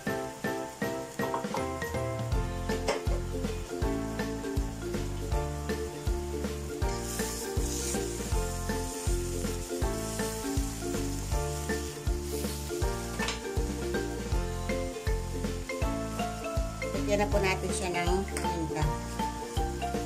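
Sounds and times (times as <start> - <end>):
background music with steady beat: 0.0 - 20.0
meat sizzling in a wok: 0.0 - 20.0
wooden spatula turning food: 6.0 - 17.1.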